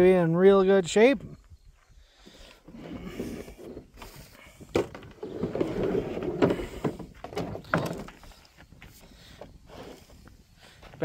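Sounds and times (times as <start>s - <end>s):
plastic case scraping and rattling: 2.6s - 8.3s.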